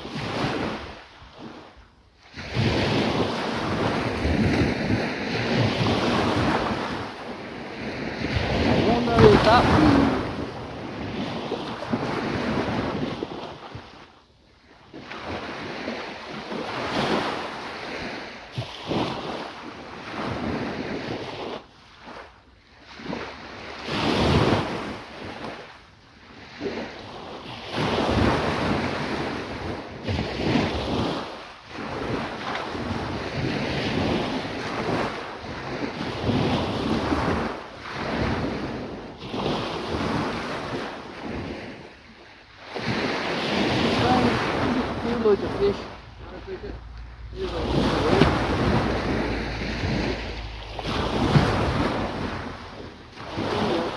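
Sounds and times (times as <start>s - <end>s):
surf breaking on beach: 0.0s - 14.1s, 14.7s - 53.9s
wind buffeting microphone: 2.4s - 14.0s, 26.4s - 53.9s.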